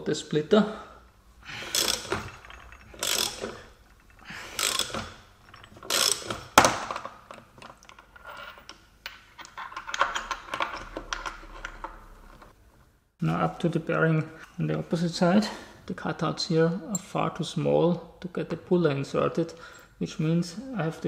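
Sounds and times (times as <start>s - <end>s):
socket ratchet clicking: 1.6s - 3.7s, 4.5s - 6.8s.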